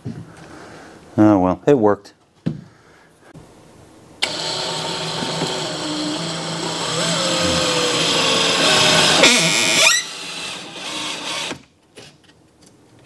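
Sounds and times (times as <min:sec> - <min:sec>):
cordless drill driving screw: 0:04.2 - 0:11.6.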